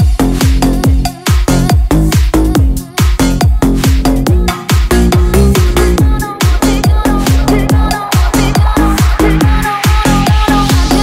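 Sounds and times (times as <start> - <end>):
heavy kick drum: 0.0 - 11.0
falling bass sweep: 3.6 - 11.0.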